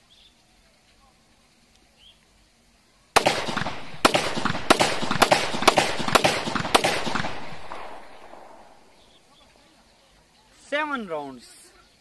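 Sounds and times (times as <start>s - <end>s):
gunshot echo: 3.2s - 9.2s
pistol shots: 3.2s - 9.2s.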